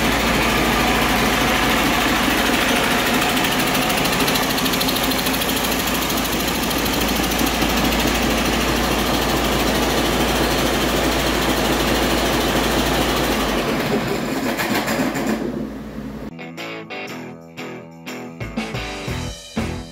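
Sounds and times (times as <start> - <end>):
diesel engine clattering: 0.0 - 16.3
music jingle: 16.3 - 19.9.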